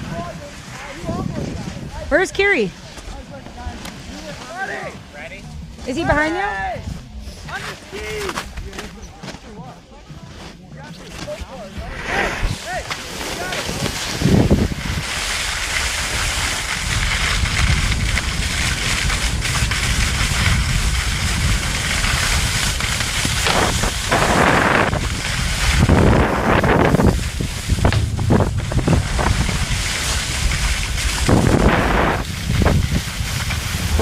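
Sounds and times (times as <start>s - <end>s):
wind rushing over microphone: 0.0s - 2.7s, 11.8s - 12.6s, 13.7s - 34.0s
snowboard scraping over snow: 0.0s - 34.0s.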